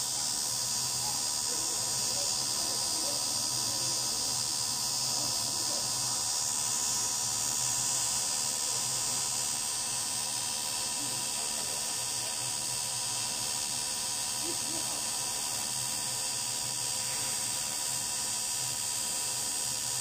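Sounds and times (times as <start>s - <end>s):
welding arc buzzing hiss: 0.0s - 20.0s.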